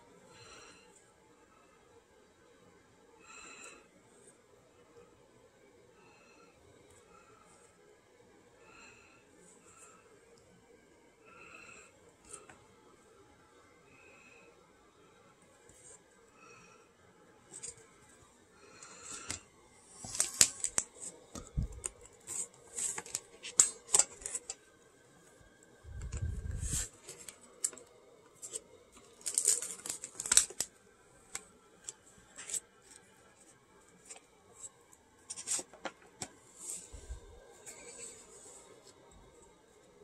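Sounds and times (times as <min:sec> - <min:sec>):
paper and plastic packaging crinkling: 0:19.0 - 0:24.6, 0:26.0 - 0:33.0, 0:35.3 - 0:36.3.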